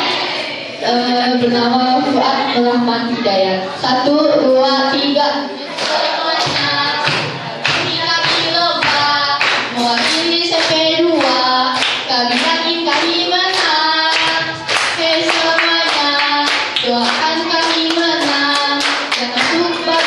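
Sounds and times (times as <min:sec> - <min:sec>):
young voices singing: 0:00.0 - 0:20.0
hands clapping to a beat: 0:05.7 - 0:20.0.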